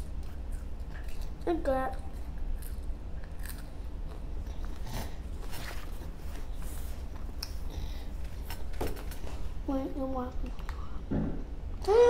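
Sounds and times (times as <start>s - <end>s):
child chewing fries: 0.0s - 8.7s.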